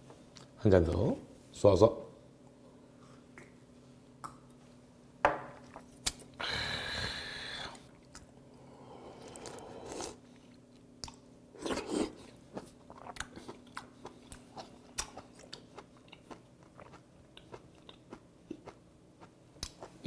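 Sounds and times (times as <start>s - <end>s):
person chewing with wet mouth clicks: 10.4s - 11.2s, 12.9s - 20.0s.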